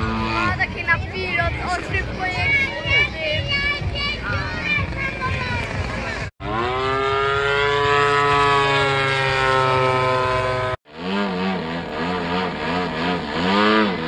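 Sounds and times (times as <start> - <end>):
model airplane engine running: 6.4 - 14.0.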